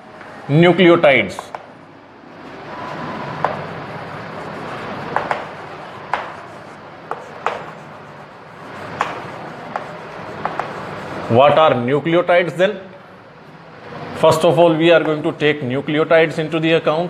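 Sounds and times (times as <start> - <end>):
chalk tapping and scratching: 1.2 - 1.8, 2.9 - 11.8.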